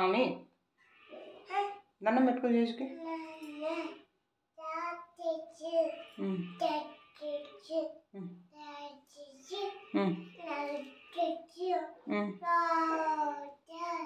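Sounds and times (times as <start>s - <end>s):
toddler babbling sing-song: 3.0s - 4.0s, 4.6s - 14.0s.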